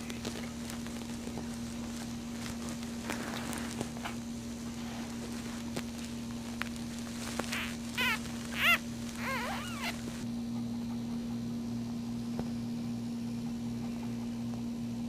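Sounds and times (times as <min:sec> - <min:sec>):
steady low hum: 0:00.0 - 0:15.0
puppy squealing: 0:07.2 - 0:10.2.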